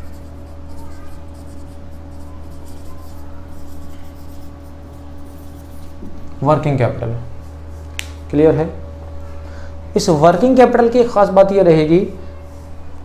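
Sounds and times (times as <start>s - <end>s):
marker pen scratching on whiteboard: 0.0s - 6.2s.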